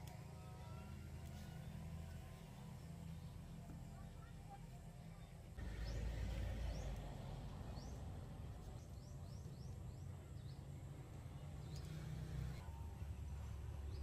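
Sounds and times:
bird chirping: 5.2 - 14.0.

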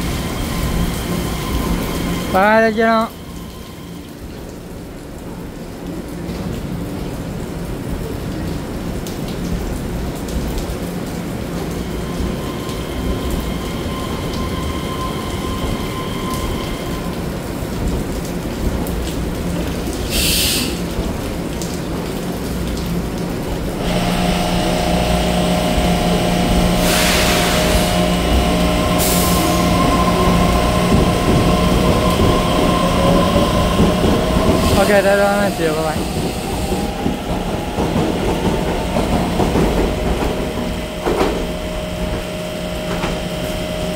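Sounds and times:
electric train rumble: 0.0 - 5.3, 8.8 - 43.9
short hisses: 20.1 - 20.8
traction motor whining: 23.8 - 34.8.

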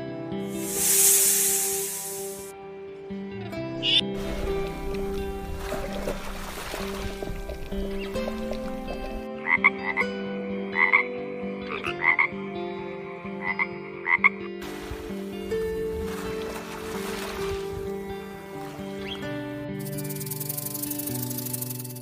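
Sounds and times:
soft background music: 0.0 - 22.0
frog croaking: 8.7 - 10.0, 10.8 - 12.3, 13.4 - 14.5.

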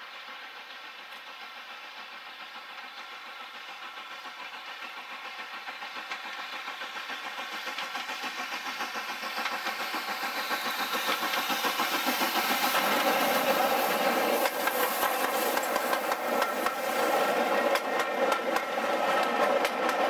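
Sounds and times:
steam locomotive chuffing: 0.0 - 20.0.

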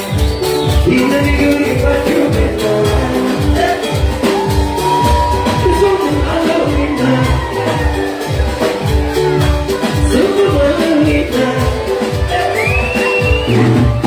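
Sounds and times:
dance music kick-drum beat: 0.0 - 14.0
man singing into a microphone: 0.8 - 8.6, 9.8 - 14.0.

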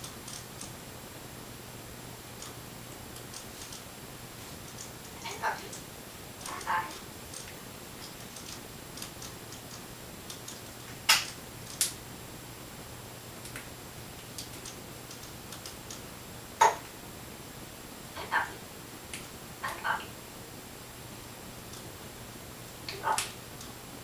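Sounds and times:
parrot clicking: 14.3 - 16.0.

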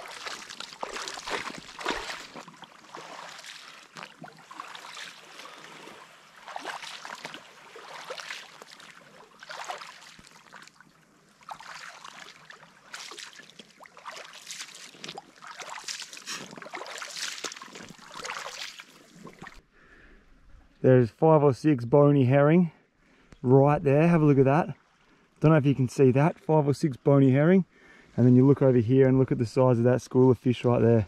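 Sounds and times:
footsteps wading through water: 0.0 - 19.7.

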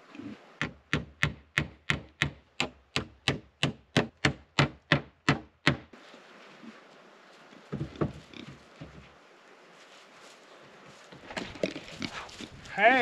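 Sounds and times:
hammer striking wooden plank: 0.6 - 5.9.

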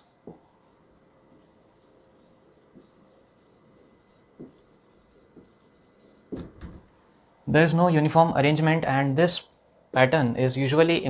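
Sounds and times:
marker scratching on whiteboard: 0.0 - 6.8.

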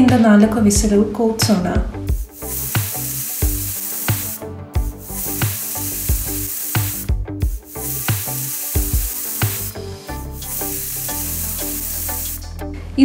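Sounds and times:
background music: 0.0 - 13.0
pressure cooker steam hiss: 2.1 - 12.5.

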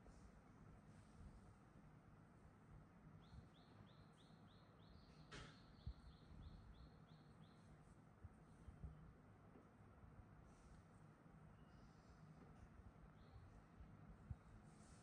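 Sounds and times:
soft rustle: 14.3 - 15.0.

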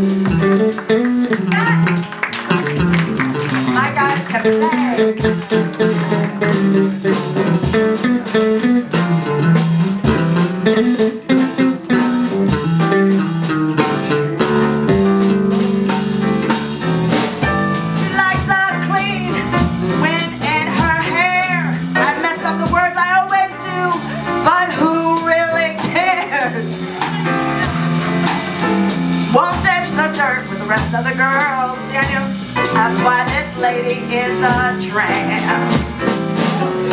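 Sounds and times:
bluesy jazz band playing: 0.0 - 36.9.

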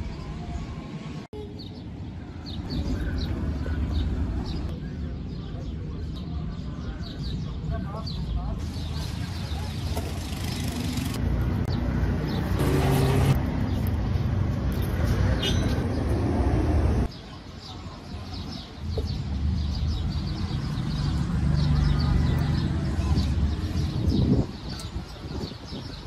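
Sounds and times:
low traffic rumble: 0.0 - 26.0.

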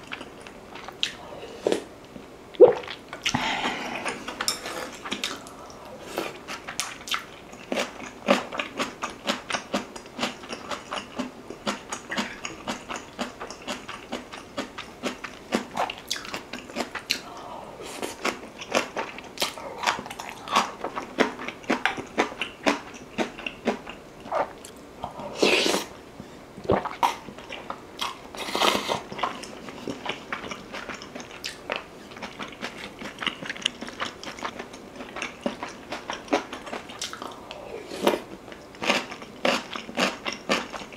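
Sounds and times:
wet chewing and smacking: 6.5 - 17.2, 29.1 - 37.4.

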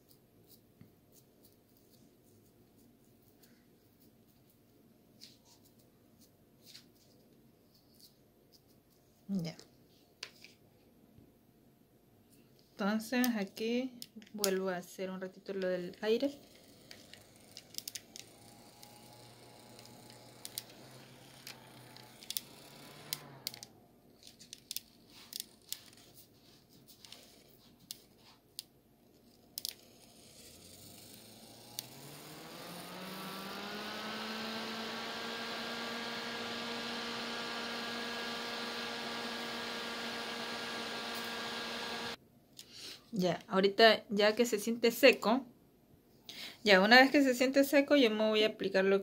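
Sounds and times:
handheld electric fan humming: 15.6 - 23.9, 29.6 - 42.2.

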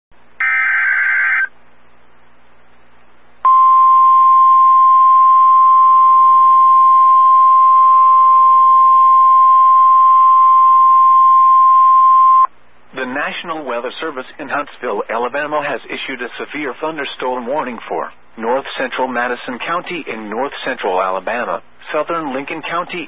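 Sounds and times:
steady warning alarm tone: 0.4 - 1.5.

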